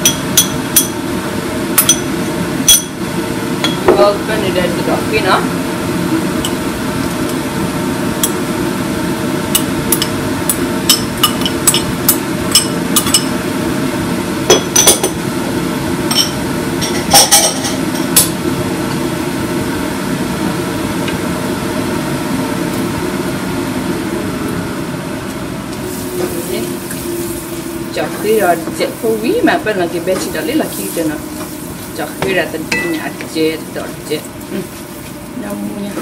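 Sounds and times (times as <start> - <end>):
steady hum: 0.0 - 36.0
kitchenware clinking: 9.6 - 13.4, 14.5 - 15.2, 16.1 - 18.4, 32.2 - 33.6.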